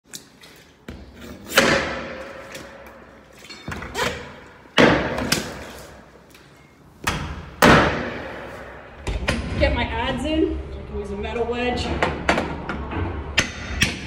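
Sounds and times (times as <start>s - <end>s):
loud bangs on metal door: 7.1s - 8.4s.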